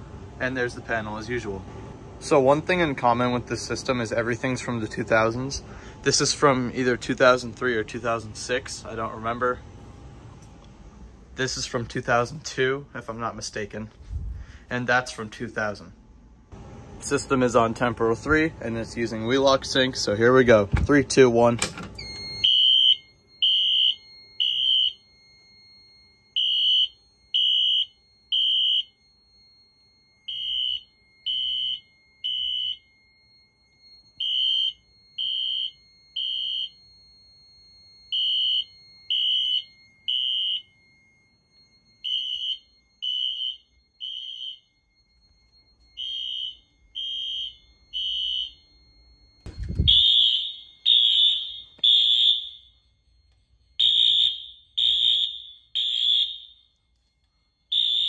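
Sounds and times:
fire alarm horn beeps: 22.0 - 58.0.

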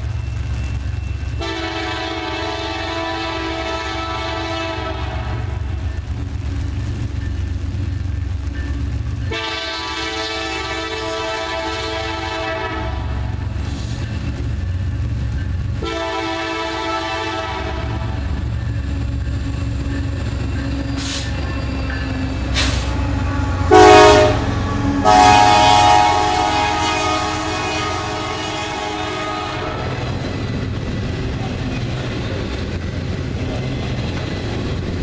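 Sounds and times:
train rumbling past: 0.0 - 35.0
locomotive air horn blasts: 1.4 - 5.7, 9.3 - 13.4, 15.8 - 18.2, 22.5 - 30.1.

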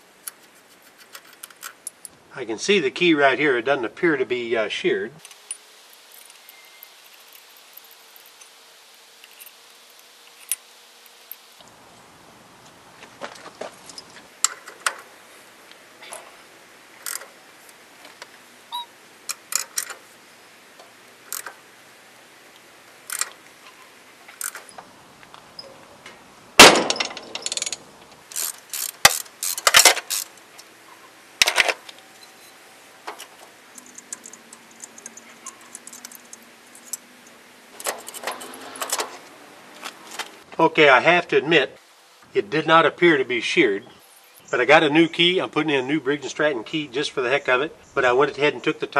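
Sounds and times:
metal clicks and light clanks: 17.0 - 17.3, 19.3 - 20.0, 20.8 - 21.6, 23.0 - 32.4, 33.0 - 40.4.

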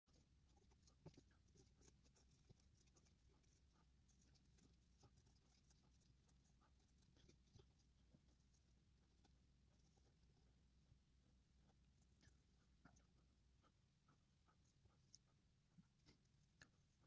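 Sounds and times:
pencil scratching and tapping: 0.1 - 10.7.

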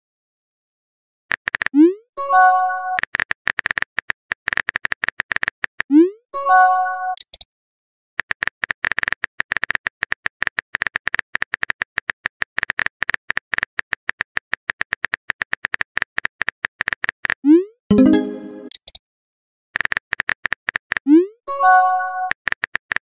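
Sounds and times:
keyboard typing clicks: 1.3 - 1.9
chiming message tone: 17.9 - 18.7.

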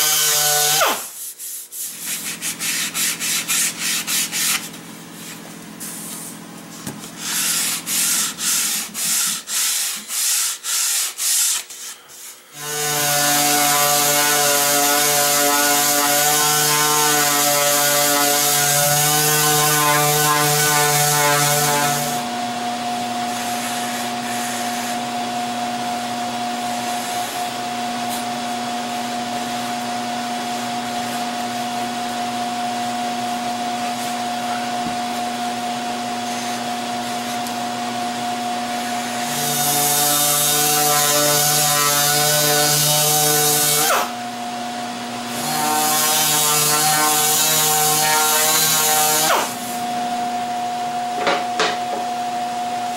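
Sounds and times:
sandpaper rubbing on wood: 0.1 - 6.4, 7.2 - 22.2.

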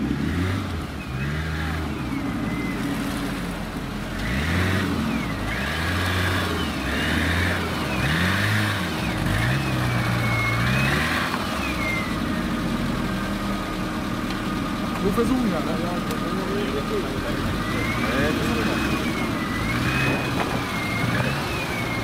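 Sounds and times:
off-road vehicle engine revving: 0.0 - 22.0.

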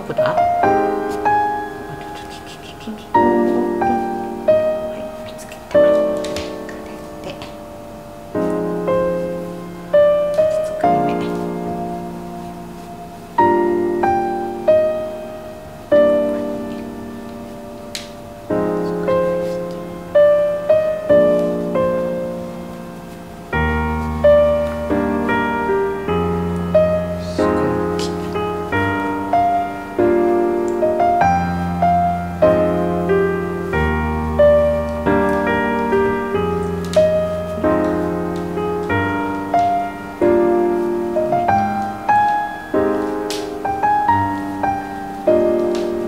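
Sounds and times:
solo piano piece: 0.0 - 46.0.

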